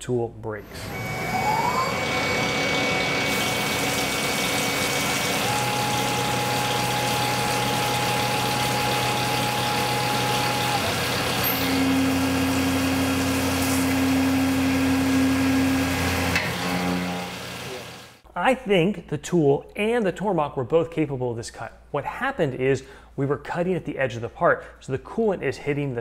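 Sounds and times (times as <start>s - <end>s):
milling machine hum: 0.6s - 18.2s
coolant spray hissing: 3.3s - 16.3s.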